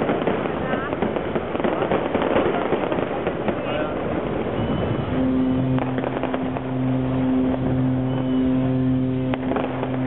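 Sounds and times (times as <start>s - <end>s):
distant firework bangs: 0.0s - 10.0s
low boat horn blast: 4.3s - 10.0s
boat horn short blasts: 4.5s - 10.0s.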